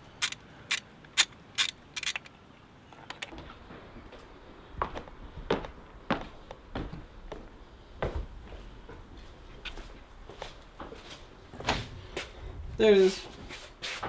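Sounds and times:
socket ratchet clicking: 0.2 - 2.3.

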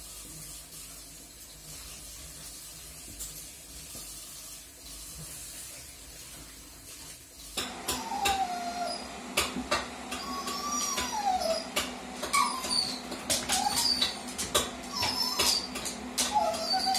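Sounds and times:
dog whining: 7.7 - 16.9
dog claws clicking on hard floor: 11.8 - 16.9.

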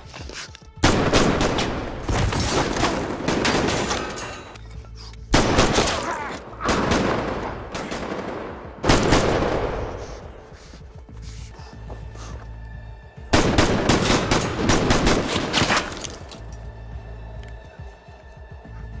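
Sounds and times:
rapid gunfire with echoes: 0.8 - 4.0, 5.3 - 10.3, 13.3 - 15.6.

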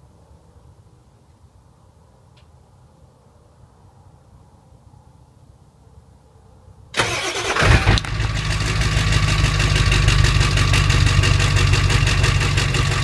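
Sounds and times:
diesel engine starting and idling: 7.0 - 13.0.

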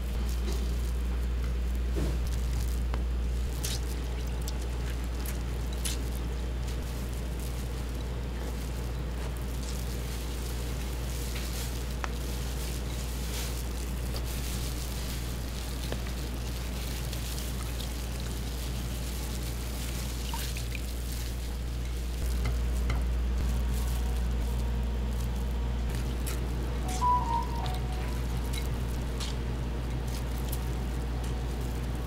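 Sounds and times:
chicken sizzling and crackling: 0.0 - 32.0
low machine hum: 0.0 - 32.0.

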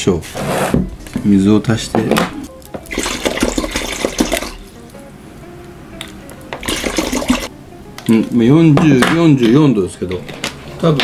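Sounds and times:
water pouring into a metal bowl: 2.8 - 4.6, 6.6 - 7.5.

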